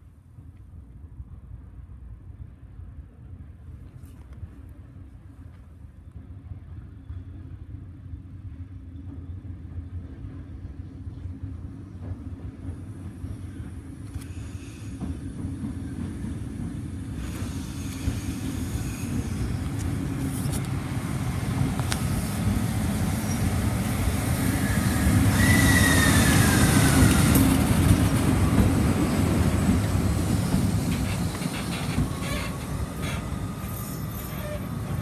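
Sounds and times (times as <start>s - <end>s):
train passing rumble: 0.0s - 35.0s
locomotive whine: 17.4s - 35.0s
wheels clacking over rail joints: 26.2s - 35.0s.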